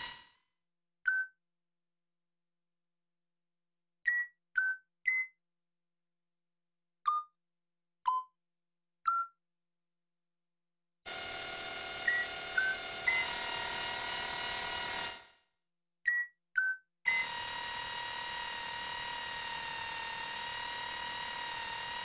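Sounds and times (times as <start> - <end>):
synthesized motor hum: 0.0 - 0.2, 11.1 - 15.3, 17.1 - 22.0.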